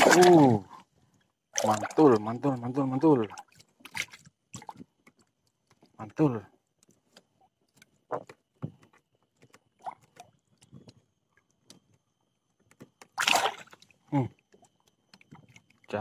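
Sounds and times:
loud water splash: 0:00.0 - 0:00.5, 0:13.2 - 0:13.7.

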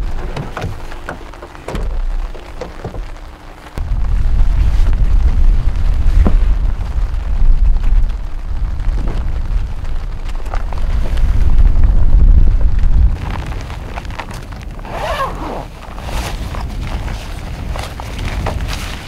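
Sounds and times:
light clicks and knocks: 0:00.0 - 0:03.5
uneven low rumble: 0:00.0 - 0:19.0.

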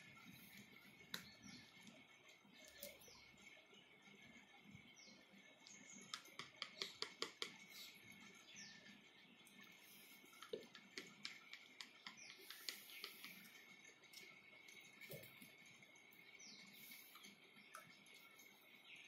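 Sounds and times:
plastic paint pots clicking: 0:06.1 - 0:07.7.

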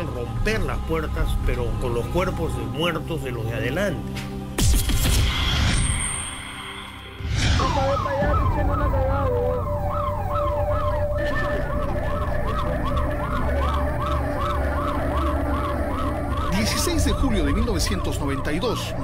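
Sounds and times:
emergency siren wailing: 0:00.0 - 0:03.3, 0:07.3 - 0:19.0.

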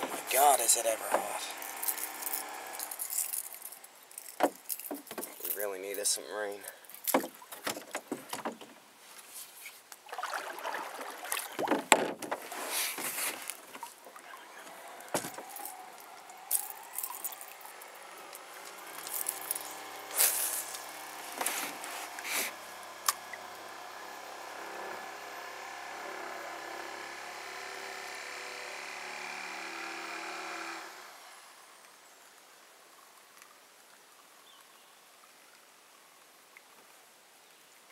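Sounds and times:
motor humming: 0:00.0 - 0:04.4, 0:12.9 - 0:31.7.

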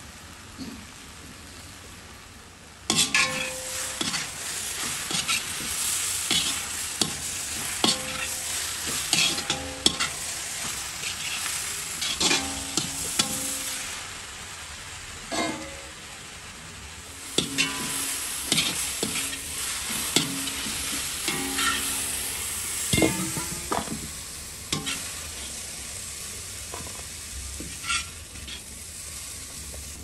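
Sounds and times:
lentils sizzling: 0:00.0 - 0:30.0
metal spatula scraping a pan: 0:02.9 - 0:14.0, 0:15.3 - 0:15.9, 0:17.3 - 0:23.8, 0:24.7 - 0:25.6, 0:27.6 - 0:28.7.

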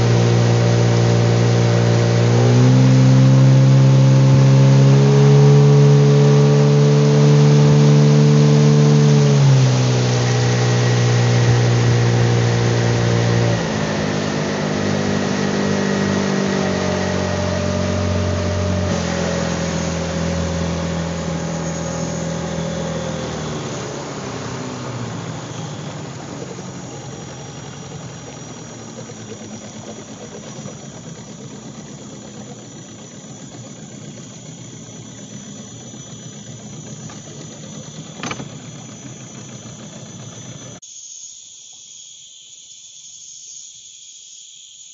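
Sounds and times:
outboard motor running: 0:00.0 - 0:40.8
high hiss of insects: 0:40.8 - 0:44.9.

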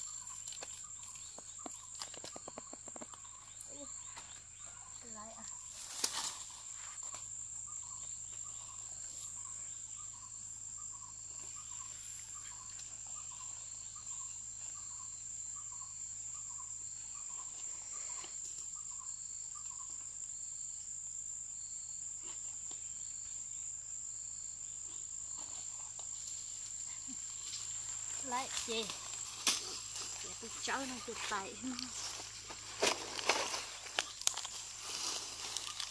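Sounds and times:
large leaves rustling: 0:00.0 - 0:07.2, 0:25.5 - 0:35.9
insects trilling: 0:00.0 - 0:35.9.

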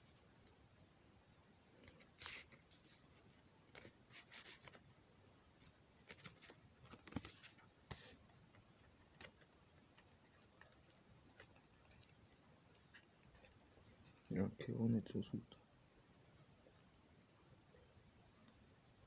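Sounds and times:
card envelope rustling and tapping: 0:06.0 - 0:12.2.

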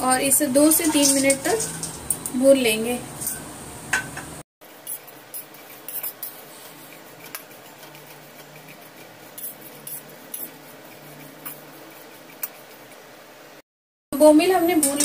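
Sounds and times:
metal spatula scraping in a pan: 0:00.2 - 0:02.2, 0:04.7 - 0:13.1.

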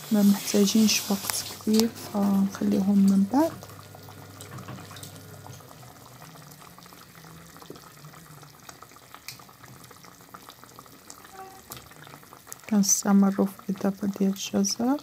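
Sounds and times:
broth bubbling in a pot: 0:00.0 - 0:15.0.

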